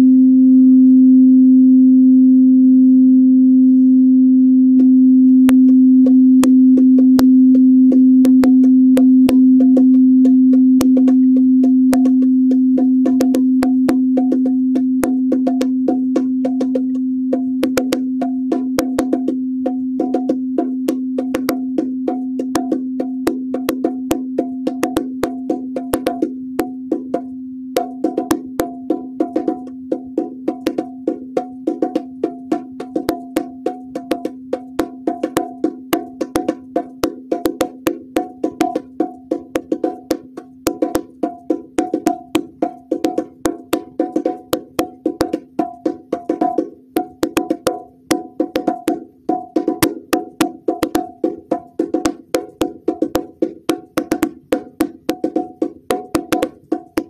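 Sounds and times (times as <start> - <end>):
singing bowl ringing: 0.0 - 23.5
hand taps on bongo drums: 4.8 - 57.0.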